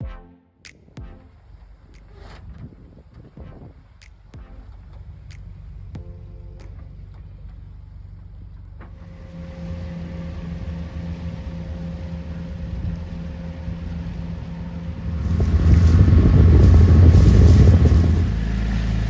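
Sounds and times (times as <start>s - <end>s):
water noise: 0.7s - 19.0s
wind buffeting microphone: 0.9s - 6.2s, 9.4s - 19.0s
boat engine running: 0.9s - 19.0s.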